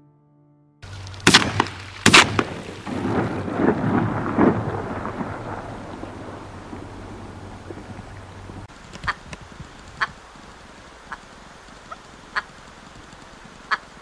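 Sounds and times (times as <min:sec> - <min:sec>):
sharp bangs: 0:01.1 - 0:08.7.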